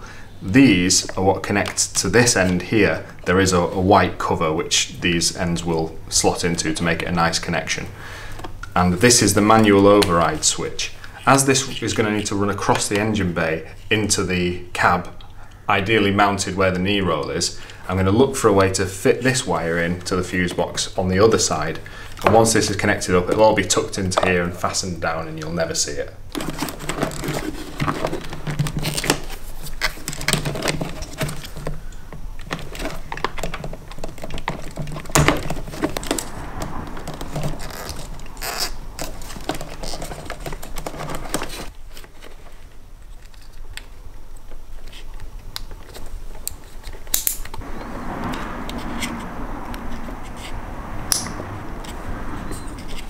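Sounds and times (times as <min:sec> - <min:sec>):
wires rustling and scraping: 0:00.0 - 0:53.0
plastic connectors clicking: 0:43.2 - 0:47.6.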